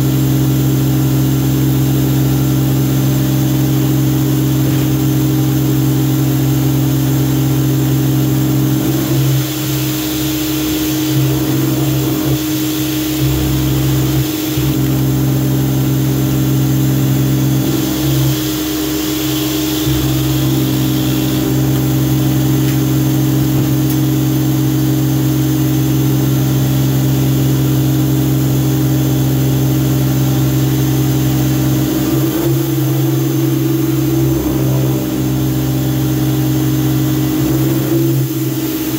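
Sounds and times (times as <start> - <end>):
pressure washer motor hum: 0.0 - 38.9.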